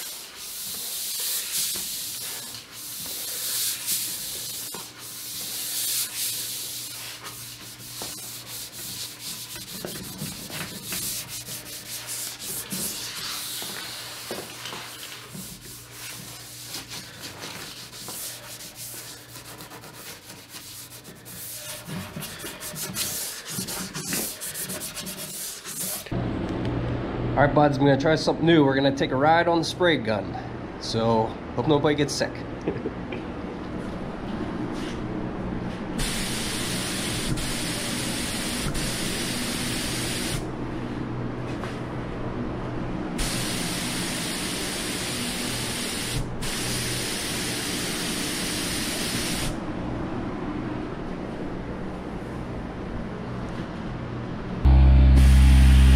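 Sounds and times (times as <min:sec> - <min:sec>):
spray gun hissing: 0:00.0 - 0:08.1, 0:36.0 - 0:40.4, 0:43.2 - 0:49.6
hand sanding wood: 0:00.0 - 0:26.1
low hum: 0:54.6 - 0:55.9.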